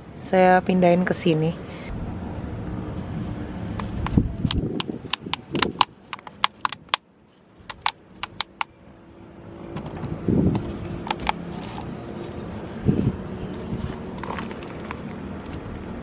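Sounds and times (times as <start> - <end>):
plastic bottle crackling and clicking: 3.7 - 8.7, 10.5 - 15.6
plastic rustling: 10.6 - 15.6.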